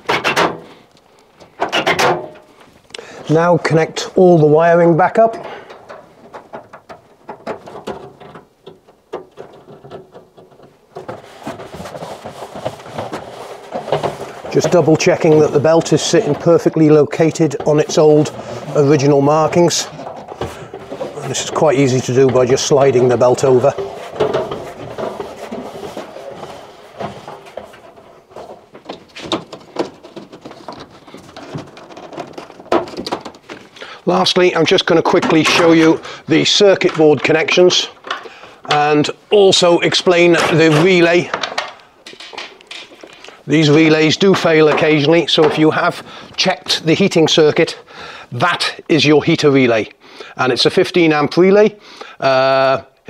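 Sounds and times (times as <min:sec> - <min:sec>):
hands scraping steel drum: 0:09.3 - 0:29.3.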